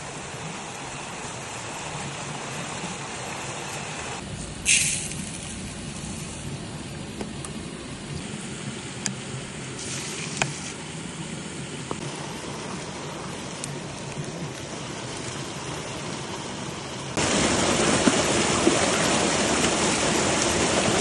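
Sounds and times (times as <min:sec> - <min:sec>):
running river water: 0:00.0 - 0:21.0
short loud hiss: 0:04.6 - 0:06.4.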